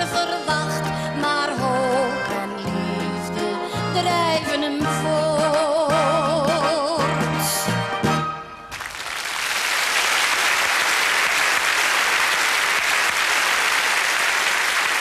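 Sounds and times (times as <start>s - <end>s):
audience applauding: 8.7s - 15.0s.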